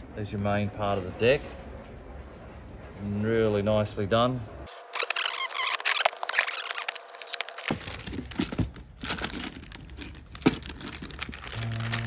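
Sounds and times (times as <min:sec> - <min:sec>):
plastic bags crinkling: 0:04.8 - 0:12.0.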